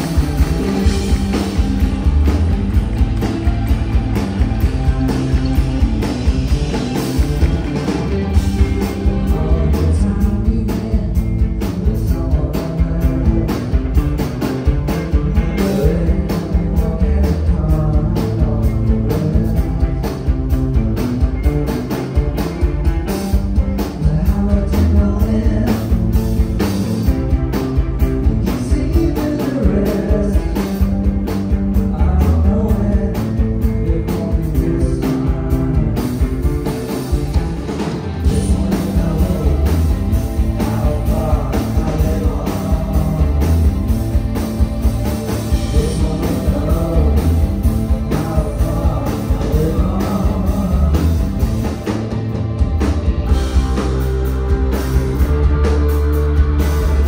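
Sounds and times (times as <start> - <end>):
drum beat: 0.0 - 18.0, 20.5 - 57.0
electric guitars: 0.0 - 57.0
person singing lead vocal: 8.6 - 20.3, 23.9 - 27.1, 28.1 - 31.0, 31.8 - 36.6, 37.8 - 44.2, 45.4 - 51.8.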